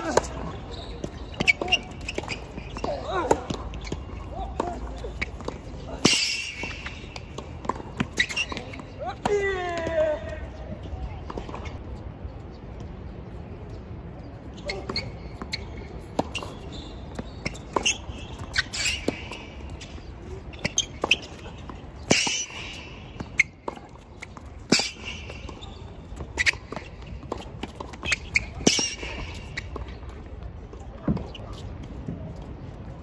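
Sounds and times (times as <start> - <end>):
shoe squeaks: 0.0 - 9.1, 14.4 - 30.2, 31.0 - 31.8.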